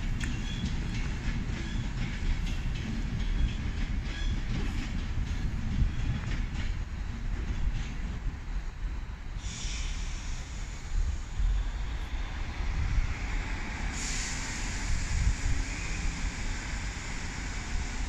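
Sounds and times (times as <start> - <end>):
wheels clicking over rail joints: 0.0 - 8.3
electric train rumbling on track: 0.0 - 18.0.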